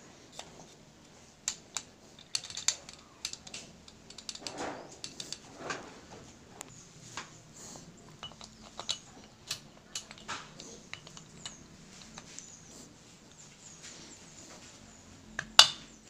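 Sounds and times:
metal engine parts clinking: 1.5s - 5.5s, 8.0s - 12.6s.

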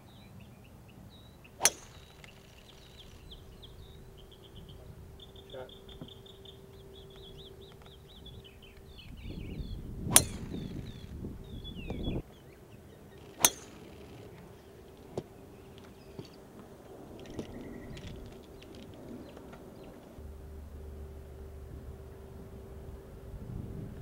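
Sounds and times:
faint birds chirping: 0.0s - 24.0s
golf club striking ball: 1.6s - 12.2s, 13.2s - 14.4s.

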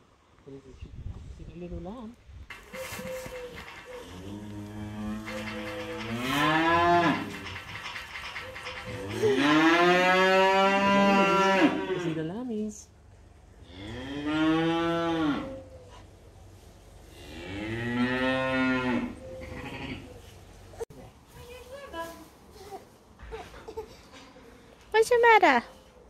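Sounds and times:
cattle mooing: 4.0s - 7.6s, 8.9s - 12.2s, 17.3s - 20.2s.

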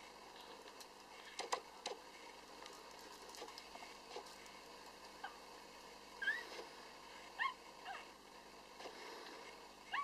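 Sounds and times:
puppy squeaking: 6.2s - 6.4s.

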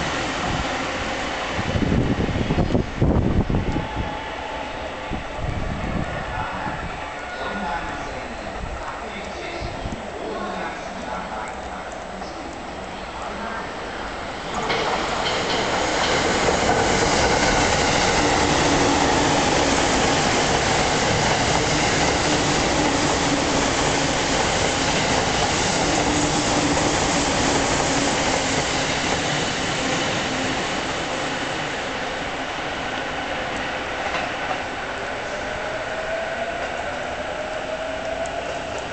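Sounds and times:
train wheels on rails: 13.5s - 38.9s.

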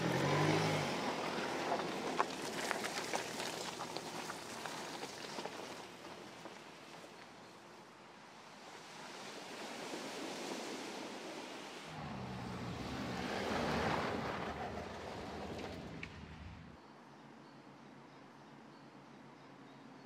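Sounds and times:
car driving on dirt: 0.0s - 7.5s, 11.9s - 16.8s
low engine hum: 11.9s - 16.8s.

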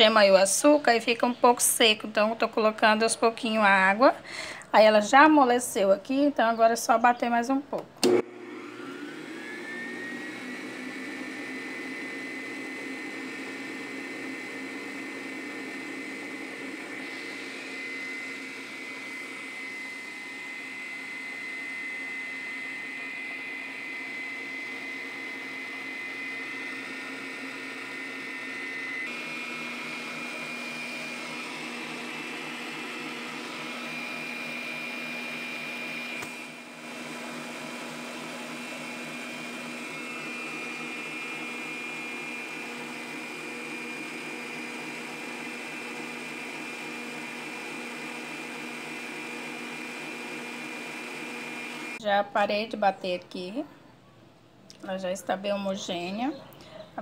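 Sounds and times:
stand mixer motor whine: 8.0s - 52.0s.

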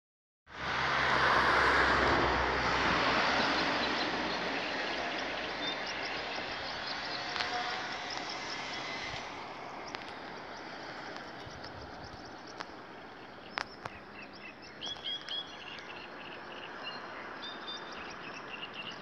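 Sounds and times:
passing vehicle rushing: 0.5s - 11.4s.

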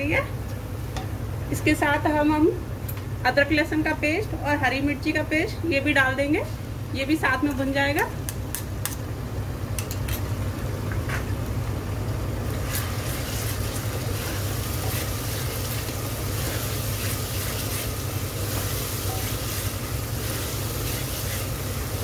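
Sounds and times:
onions sizzling in oil: 12.5s - 22.0s.

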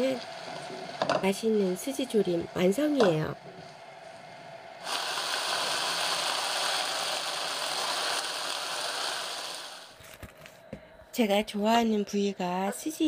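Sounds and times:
food sizzling in a wok: 4.8s - 10.0s.

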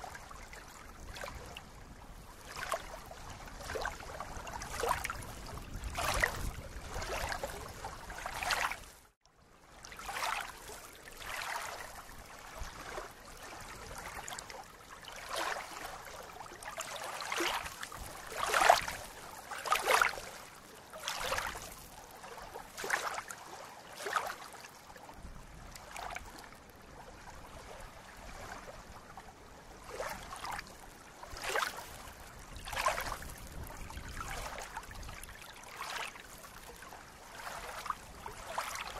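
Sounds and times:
small waves lapping on shore: 0.0s - 38.9s.

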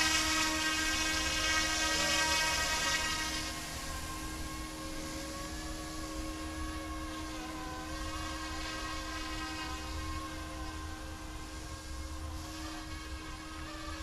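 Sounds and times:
rc helicopter motor whine: 0.0s - 14.0s.

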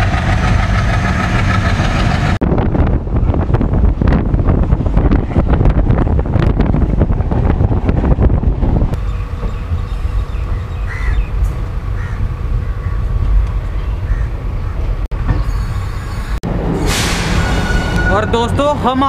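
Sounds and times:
wind buffeting microphone: 0.0s - 15.5s
train coaches rumbling: 0.0s - 19.0s.

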